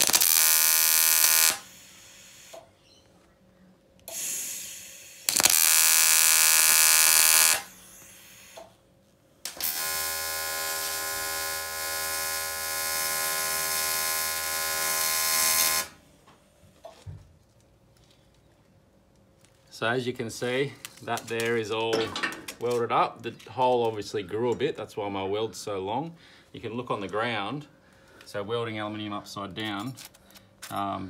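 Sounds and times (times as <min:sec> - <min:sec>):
welding arc buzzing: 0:00.0 - 0:02.6, 0:04.1 - 0:08.7, 0:09.4 - 0:16.0.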